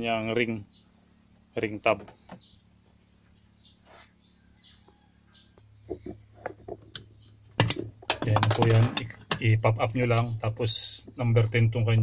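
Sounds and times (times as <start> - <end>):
faint bird chirps: 0.0 - 8.1.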